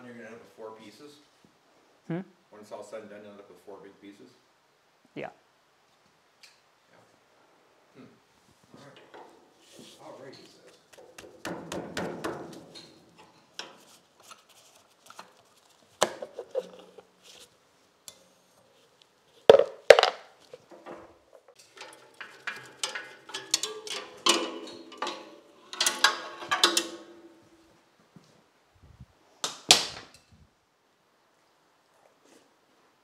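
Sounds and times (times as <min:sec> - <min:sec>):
metal parts knocking and clanking: 0:21.6 - 0:27.4.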